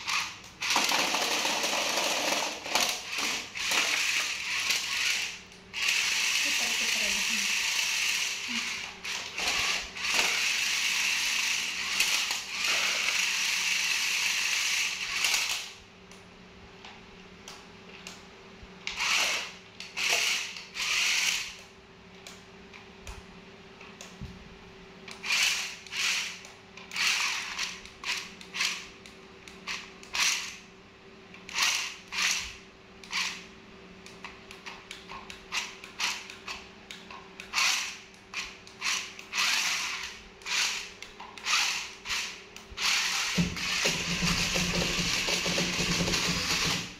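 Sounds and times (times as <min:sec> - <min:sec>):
toy car motors whirring: 0:00.0 - 0:15.8, 0:18.9 - 0:21.7, 0:25.1 - 0:28.9, 0:29.7 - 0:30.6, 0:31.4 - 0:33.5, 0:34.5 - 0:36.6, 0:37.4 - 0:46.9.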